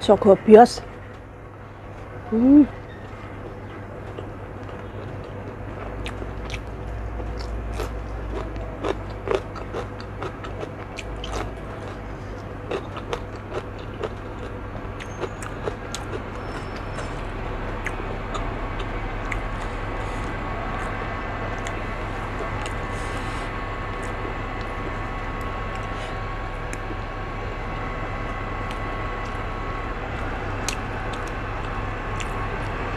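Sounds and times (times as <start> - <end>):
steady background hum: 0.0 - 32.9
crunchy cucumber bites and chewing: 4.0 - 21.8.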